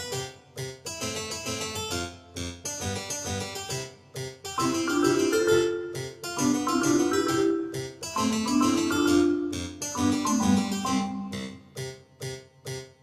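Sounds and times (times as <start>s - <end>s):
keyboard melody: 4.5s - 11.9s.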